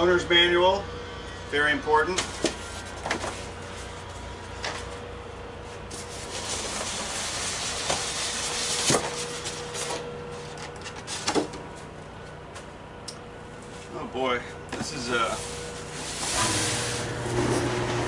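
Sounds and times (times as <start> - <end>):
cardboard box rubbing and scraping: 5.9 - 9.6.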